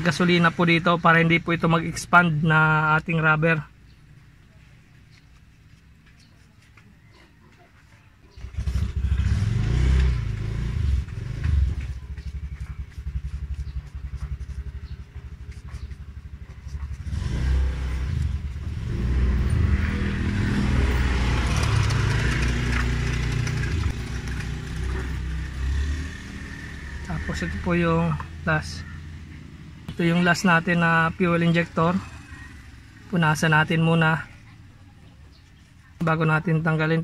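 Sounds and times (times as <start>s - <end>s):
vehicle engine running and revving: 8.2s - 37.0s.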